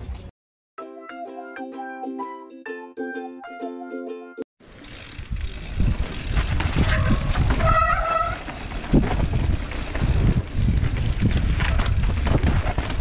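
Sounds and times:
mountain bike rumble and rattle: 0:04.6 - 0:13.0
wind buffeting microphone: 0:05.2 - 0:13.0.

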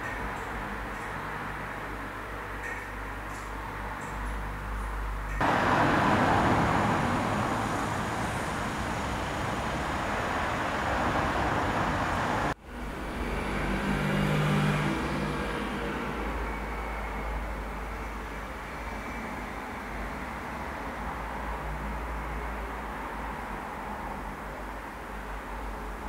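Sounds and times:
bus engine hum passing: 0:00.0 - 0:26.0
passing vehicles rushing: 0:05.2 - 0:18.2.

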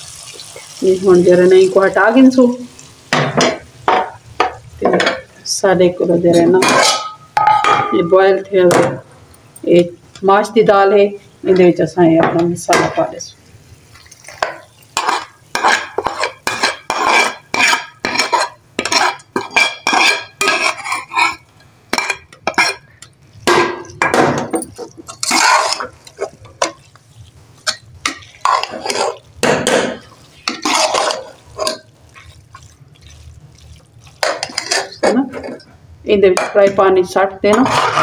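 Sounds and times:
metal spoon scraping metal pot: 0:06.4 - 0:08.2, 0:14.4 - 0:32.7, 0:34.1 - 0:35.7, 0:37.5 - 0:38.0.

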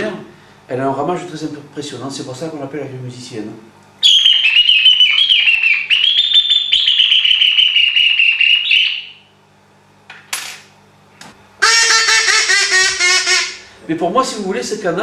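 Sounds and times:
bird call whistle warbling: 0:04.0 - 0:09.3, 0:11.6 - 0:13.6.

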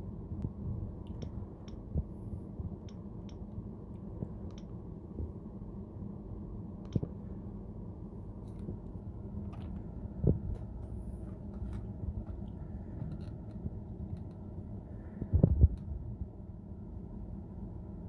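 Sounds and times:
low steady rumble: 0:00.0 - 0:18.0.

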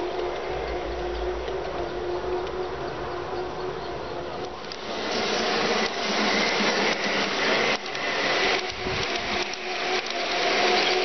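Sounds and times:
model train motor whirring: 0:04.4 - 0:11.0.

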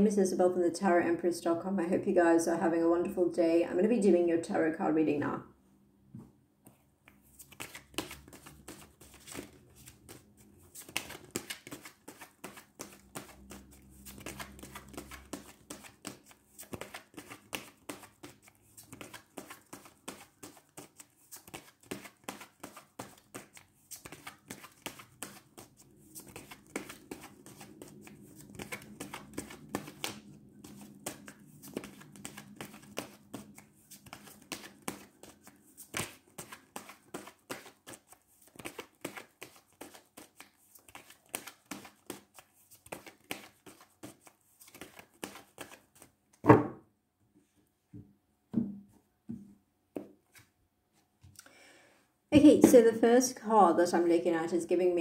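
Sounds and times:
cards being shuffled: 0:07.0 - 0:46.4.

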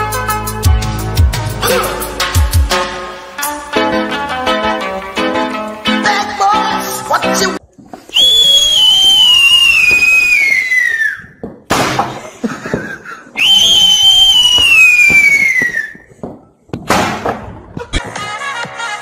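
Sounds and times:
falling whistle: 0:08.1 - 0:11.4, 0:13.4 - 0:16.1
loud bang: 0:16.9 - 0:17.7.

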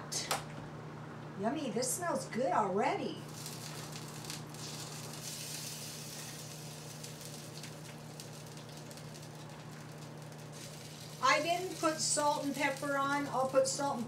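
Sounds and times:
steady low hum: 0:00.0 - 0:14.0
food sizzling in a frying pan: 0:03.2 - 0:14.0.

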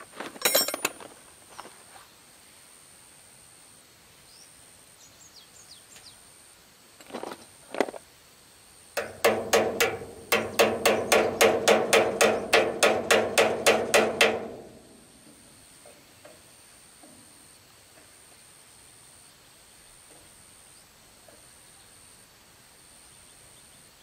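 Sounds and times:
sharp metallic clicks: 0:09.0 - 0:14.8.

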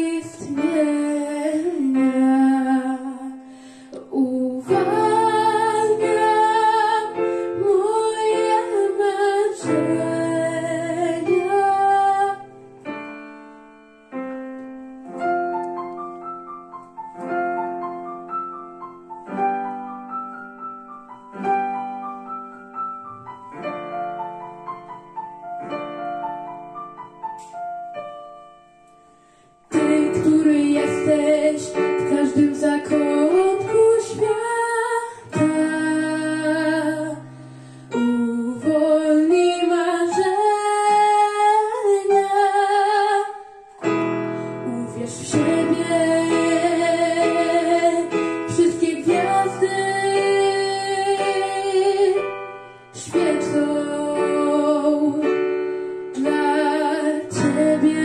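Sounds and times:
boy singing: 0:04.0 - 0:12.5, 0:29.7 - 0:37.2, 0:44.7 - 0:52.2, 0:53.0 - 0:55.3, 0:56.2 - 0:58.0
digital piano playing: 0:04.0 - 0:58.0.

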